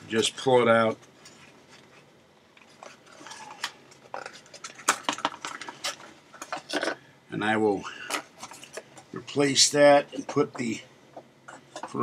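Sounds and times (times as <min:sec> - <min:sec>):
plastic and cardboard crinkling: 0:01.2 - 0:07.0
sharp packaging clicks: 0:03.3 - 0:06.9.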